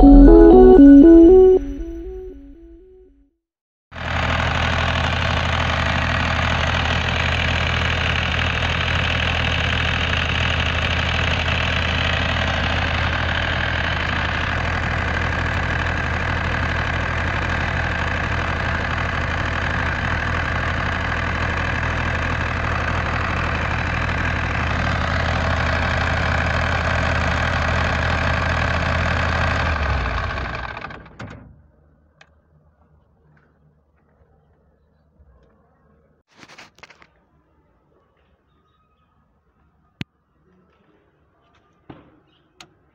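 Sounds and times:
diesel generator running: 4.0s - 31.4s.

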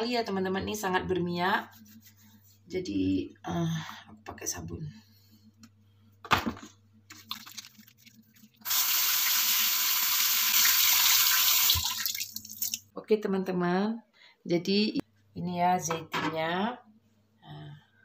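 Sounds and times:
tap water running over hands: 7.2s - 12.8s.

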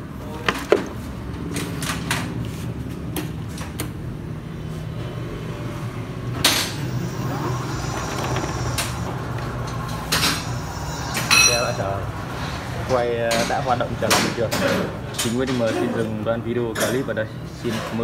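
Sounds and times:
electric hub motor humming: 6.0s - 13.1s.

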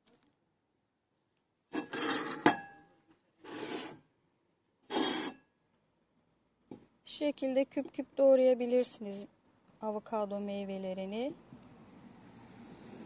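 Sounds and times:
ceramic plate clink: 1.8s - 2.9s.

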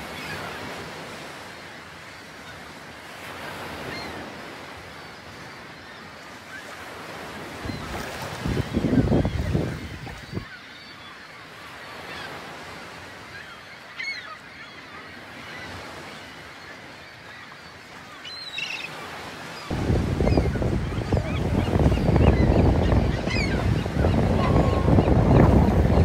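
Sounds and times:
wind buffeting microphone: 7.7s - 10.5s, 19.7s - 26.0s
distant sea lions barking: 18.8s - 26.0s.

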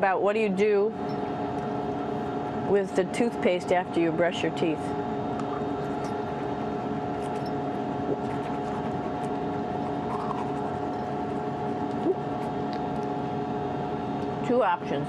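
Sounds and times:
cabin fans humming: 0.0s - 15.0s
toothbrush scrubbing teeth: 5.4s - 7.5s, 8.1s - 13.0s.

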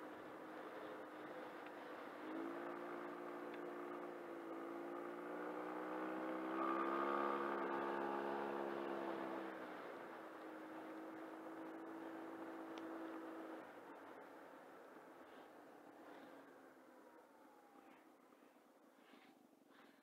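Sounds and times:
scooter engine running: 0.0s - 14.3s.

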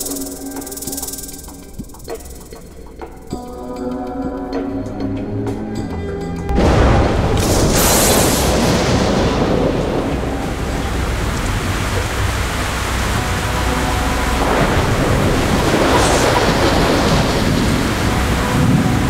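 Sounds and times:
heavy rain: 6.5s - 19.0s
thunder rumbling: 6.5s - 19.0s.

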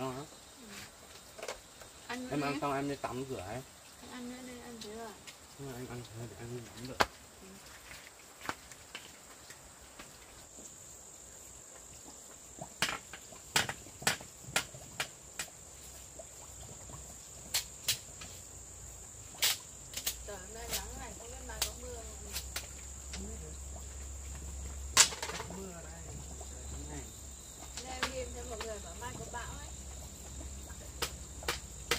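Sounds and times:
tool chopping wood: 12.8s - 15.5s, 31.0s - 31.9s
high-pitched insect chirring: 15.8s - 31.9s.

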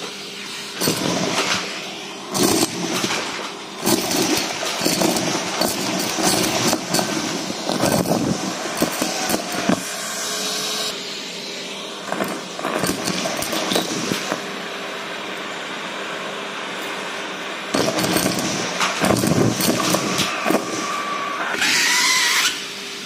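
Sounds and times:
vacuum cleaner running: 0.0s - 23.0s
scraps rattling up metal tube: 2.4s - 9.8s.

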